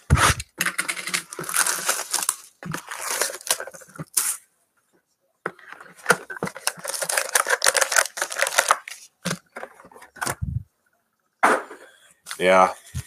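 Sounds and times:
packaging crinkling and tearing: 0:00.1 - 0:04.4, 0:06.0 - 0:09.6.

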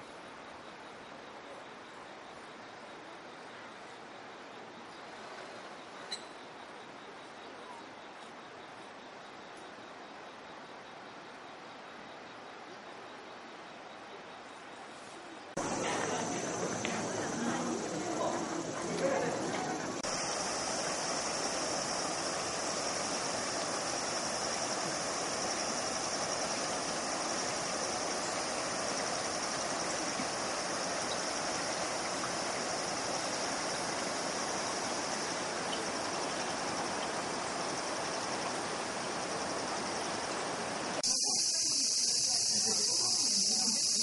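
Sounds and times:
insects chirping: 0:00.0 - 0:44.0
river rushing over rocks: 0:15.6 - 0:39.6.

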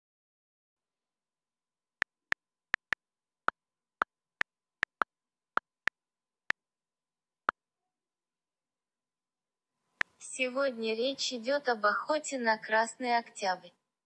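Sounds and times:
touchscreen typing taps: 0:02.8 - 0:03.0, 0:04.8 - 0:05.1.

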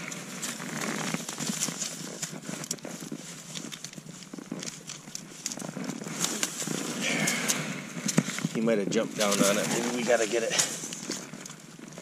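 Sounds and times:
dry reeds rustling: 0:00.0 - 0:12.0
snow crunching: 0:00.0 - 0:12.0.

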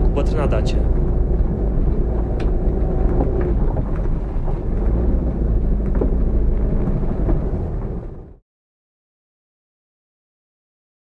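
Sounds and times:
car engine and road noise: 0:00.0 - 0:08.4.

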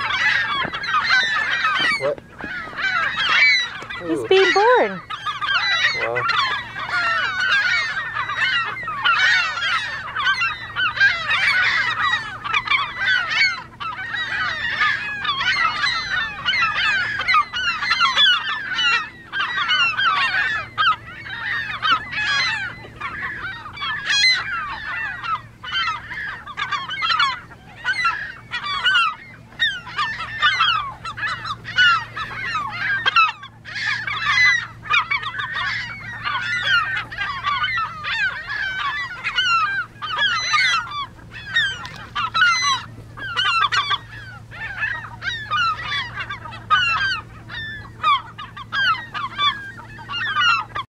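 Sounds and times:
gulls calling: 0:00.0 - 0:50.9.

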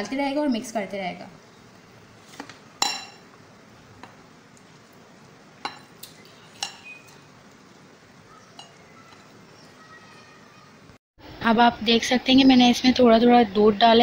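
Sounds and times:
metal utensil clinking on glass bowl: 0:02.8 - 0:03.2, 0:08.6 - 0:09.3.

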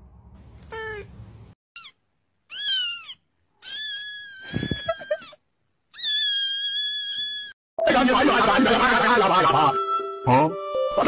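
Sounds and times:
kitten meowing: 0:01.8 - 0:05.3, 0:05.9 - 0:07.5.

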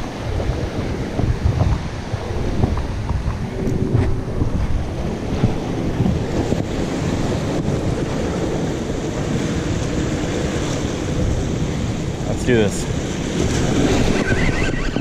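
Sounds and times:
surf washing against rocks: 0:00.0 - 0:15.0
wind buffeting microphone: 0:00.0 - 0:15.0.

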